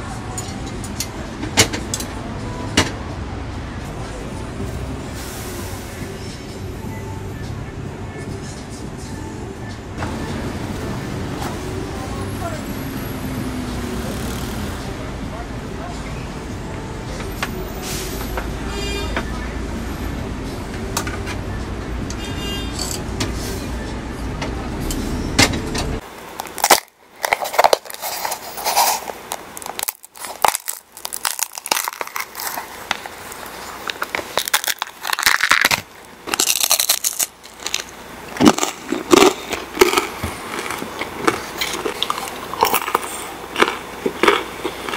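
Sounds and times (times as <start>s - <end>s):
low street rumble: 0.0s - 44.9s
crisp pancake shell crackling: 26.4s - 44.9s.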